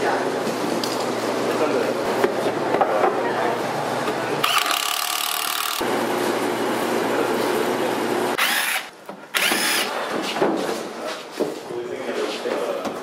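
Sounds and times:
tools working on wood: 4.4s - 5.9s, 8.4s - 11.0s.

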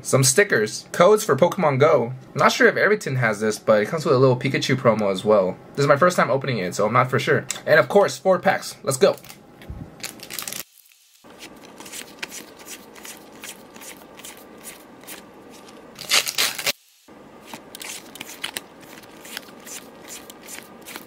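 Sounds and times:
soft rustle of cards: 9.0s - 16.6s, 17.4s - 21.0s
loud crinkling rustle: 10.0s - 16.8s, 17.4s - 21.0s
trading cards clicking: 11.6s - 16.6s, 17.5s - 21.0s.

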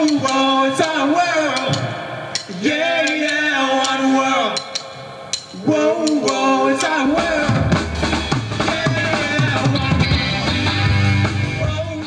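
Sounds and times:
drum kit: 0.0s - 12.0s
live rock band playing: 5.0s - 12.0s.

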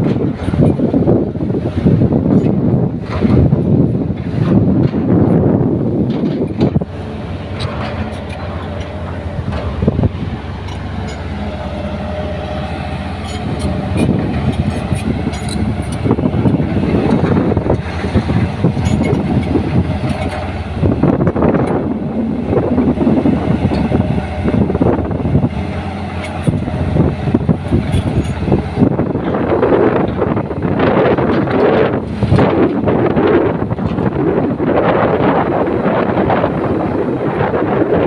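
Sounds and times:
excavator diesel engine running: 0.0s - 38.0s
knocks and scraping: 1.8s - 32.9s.

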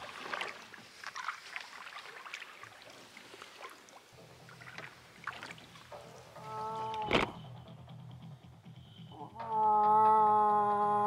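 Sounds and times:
water splashes and drips: 0.0s - 7.3s
paddle stroking through water: 0.0s - 7.5s.

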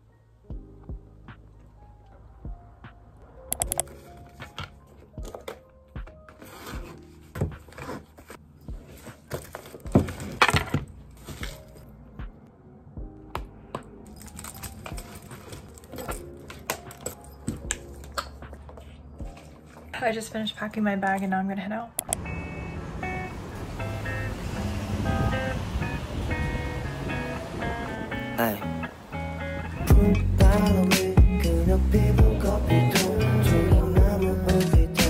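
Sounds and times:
soft background music: 0.0s - 35.0s
objects set down on a desk: 9.3s - 11.6s.

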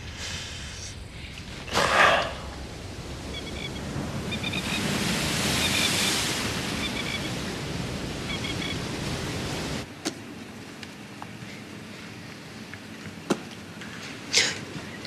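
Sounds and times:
ocean surf: 0.0s - 9.9s.

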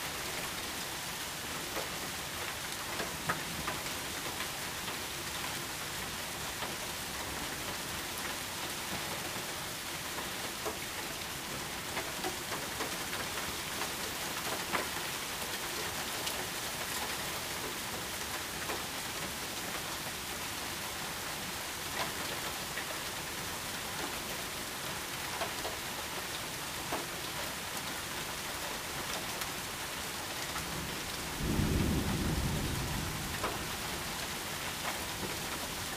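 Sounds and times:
heavy rain pouring: 0.0s - 35.9s
thunder rumbling: 31.3s - 34.0s.

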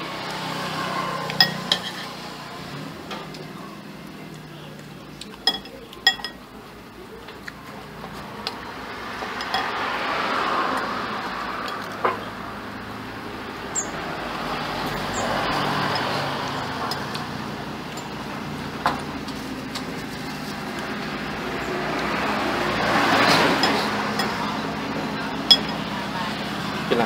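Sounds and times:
road traffic going by: 0.0s - 27.0s
metal spoon clinking on plate: 1.3s - 2.2s, 5.4s - 6.4s, 9.4s - 9.7s, 25.5s - 25.8s.

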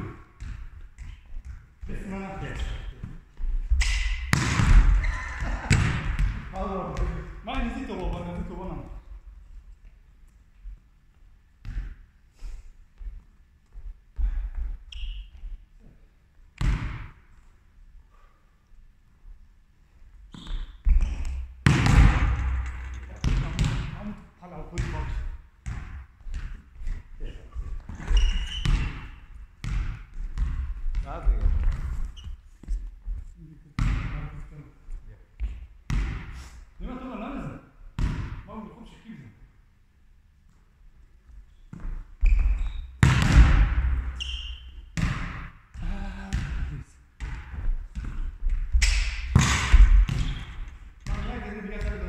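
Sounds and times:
ball bouncing on hall floor: 0.0s - 10.9s, 11.5s - 12.2s, 13.0s - 15.8s, 16.5s - 17.5s, 20.2s - 34.4s, 35.4s - 36.4s, 37.8s - 38.6s, 41.2s - 52.0s
sneaker squeak: 3.7s - 5.8s, 14.9s - 15.6s, 20.3s - 21.6s, 27.8s - 29.4s, 32.1s - 32.5s, 41.5s - 43.0s, 44.0s - 45.0s, 50.1s - 50.8s
volleyball thudding on floor: 3.7s - 7.2s, 21.0s - 24.0s, 43.0s - 44.0s, 47.2s - 52.0s
brief high squeak: 28.0s - 29.0s, 44.2s - 44.8s.

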